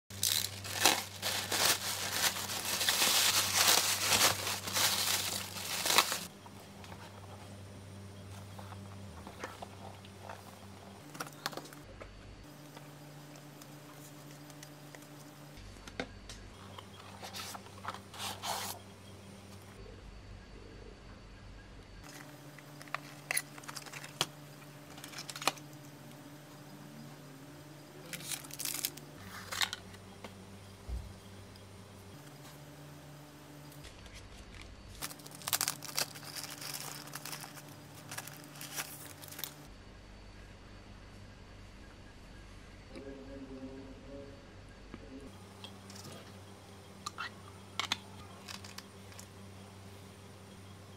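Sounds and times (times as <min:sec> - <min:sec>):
paper and cardboard rustling: 0:00.1 - 0:06.3, 0:34.0 - 0:39.7
plastic bag crinkling: 0:00.1 - 0:06.3, 0:28.0 - 0:29.8, 0:35.0 - 0:39.7
faint steady hum: 0:00.1 - 0:50.9.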